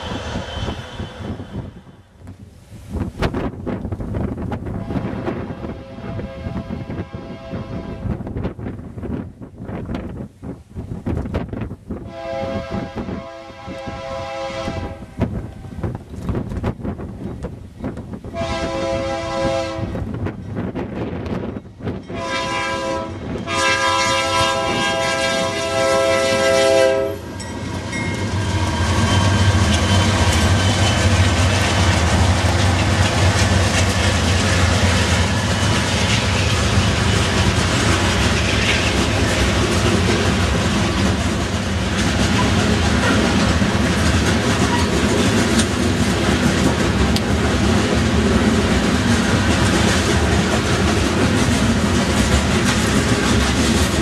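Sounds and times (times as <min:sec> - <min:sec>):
train air horn blasts: 0:04.7 - 0:08.2, 0:12.0 - 0:15.2, 0:18.3 - 0:20.0, 0:22.1 - 0:27.5
locomotive engines passing: 0:24.2 - 0:54.0
train wheels clacking on rails: 0:27.2 - 0:54.0.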